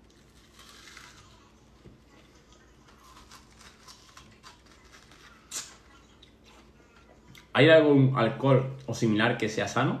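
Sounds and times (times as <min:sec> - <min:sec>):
person chewing watermelon: 0:00.0 - 0:07.6.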